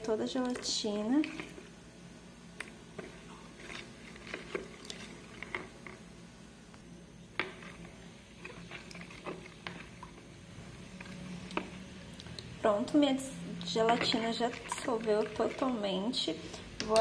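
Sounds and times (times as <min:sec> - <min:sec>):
water sloshing in a bowl: 0:00.0 - 0:01.7, 0:02.6 - 0:06.0, 0:07.4 - 0:12.6, 0:13.4 - 0:17.0
spoon scraping a plastic bowl: 0:01.2 - 0:01.7, 0:02.6 - 0:06.0, 0:07.4 - 0:10.2, 0:10.8 - 0:12.0, 0:13.6 - 0:16.3.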